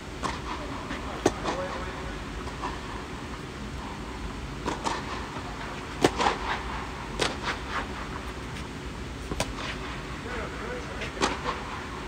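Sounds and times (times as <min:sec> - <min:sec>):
low background noise: 0:00.0 - 0:12.0
tennis ball hit and bouncing: 0:04.6 - 0:05.3, 0:05.9 - 0:06.4, 0:09.2 - 0:09.8.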